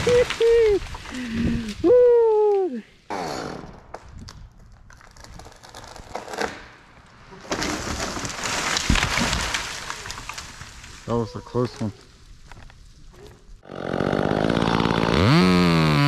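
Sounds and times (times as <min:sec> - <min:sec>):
person shouting: 0:00.0 - 0:00.8
tree crashing to the ground: 0:00.0 - 0:01.8, 0:04.9 - 0:13.0
tree cracking and swishing: 0:00.0 - 0:01.9, 0:04.2 - 0:15.9.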